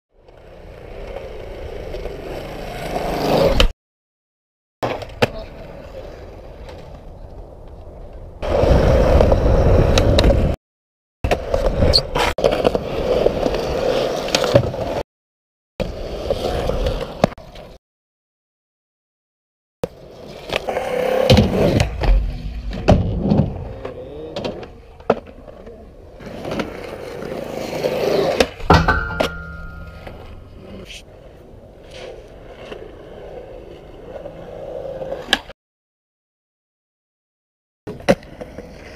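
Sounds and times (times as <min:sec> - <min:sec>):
skateboard wheels rolling on concrete: 0:00.1 - 0:03.7, 0:04.8 - 0:10.6, 0:11.2 - 0:15.0, 0:15.8 - 0:17.8, 0:19.8 - 0:35.6, 0:37.9 - 0:38.9
skateboard pops and landings: 0:03.1 - 0:03.7, 0:04.8 - 0:05.5, 0:14.2 - 0:15.0, 0:19.8 - 0:30.5, 0:35.2 - 0:35.5, 0:37.9 - 0:38.7.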